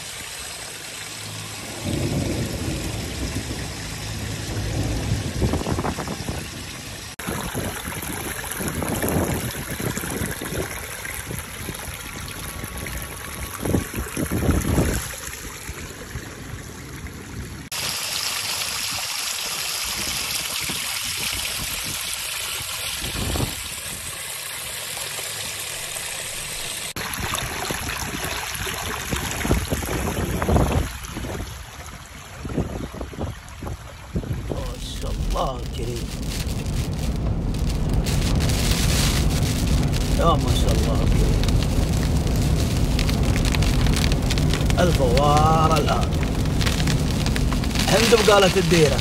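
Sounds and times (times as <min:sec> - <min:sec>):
water rushing over rocks: 0:00.0 - 0:16.8, 0:17.6 - 0:49.0
wind buffeting microphone: 0:01.7 - 0:15.8, 0:29.0 - 0:31.7, 0:32.4 - 0:49.0.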